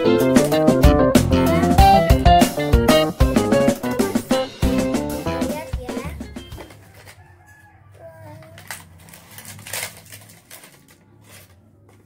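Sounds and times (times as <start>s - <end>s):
cardboard and plastic packaging handled: 6.6s - 7.6s, 8.4s - 12.0s
packaging crinkle: 8.4s - 12.0s.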